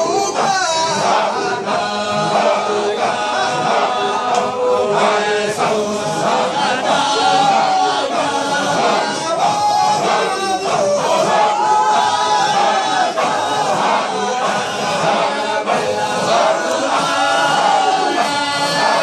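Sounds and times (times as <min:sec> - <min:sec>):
men chanting together: 0:00.0 - 0:19.0.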